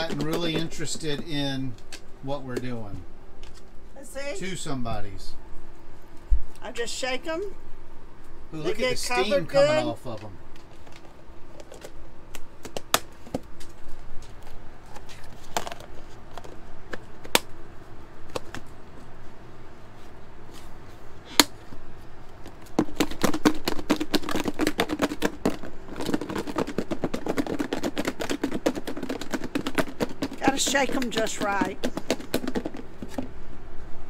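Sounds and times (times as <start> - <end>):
food rattling in shaken container: 22.8 - 33.1.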